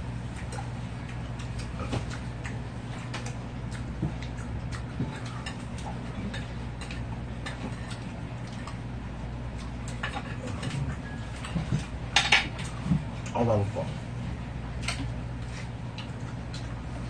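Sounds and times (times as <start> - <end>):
steady low hum: 0.0 - 17.0
chopsticks clicking on plates: 1.4 - 8.0.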